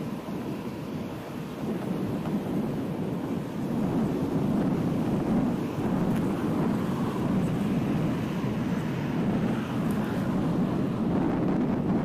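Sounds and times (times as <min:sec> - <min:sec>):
road noise: 0:00.0 - 0:12.0
street traffic: 0:00.0 - 0:12.0
wind rumble on microphone: 0:00.0 - 0:12.0.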